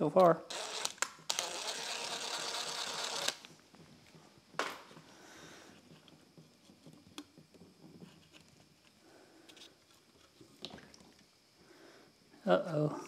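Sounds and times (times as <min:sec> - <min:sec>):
cordless ratchet spinning bolt: 0:00.5 - 0:03.5
faint handling sounds: 0:03.4 - 0:11.3.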